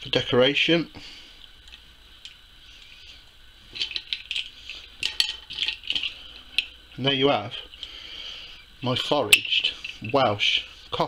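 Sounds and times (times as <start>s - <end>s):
shells clinking on a plate: 3.8s - 6.8s, 9.2s - 10.6s.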